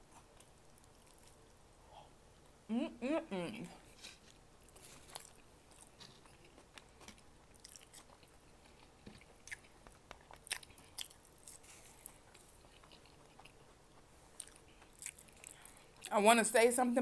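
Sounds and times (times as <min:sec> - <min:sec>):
close chewing and biting: 0:00.1 - 0:01.6, 0:04.1 - 0:16.2.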